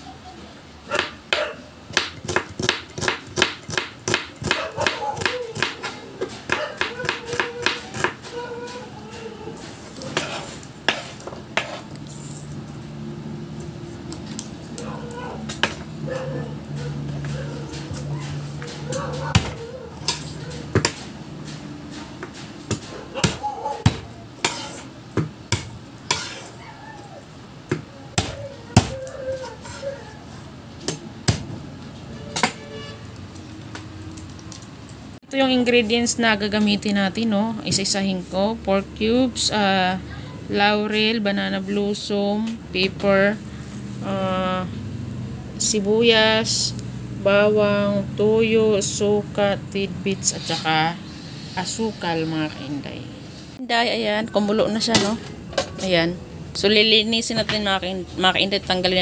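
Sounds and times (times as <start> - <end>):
knife chopping on wooden board: 1.0 - 8.8, 22.2 - 26.5, 27.7 - 29.0, 30.9 - 31.5.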